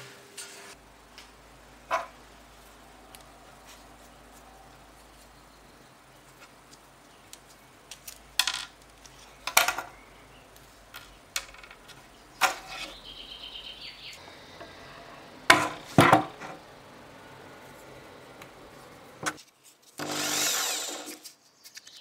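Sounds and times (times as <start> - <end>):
knocks on workbench: 15.5 - 16.4.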